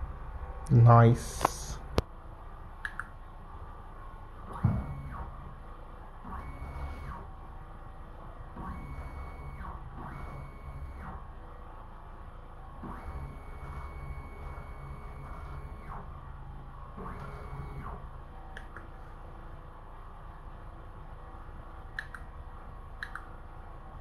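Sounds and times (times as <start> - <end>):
stepper motor whine: 4.4 - 18.6.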